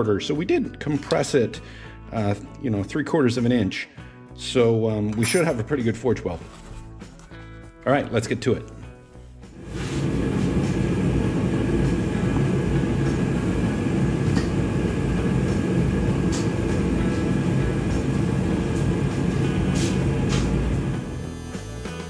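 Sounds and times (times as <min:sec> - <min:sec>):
forge burner roaring: 0:09.5 - 0:21.6.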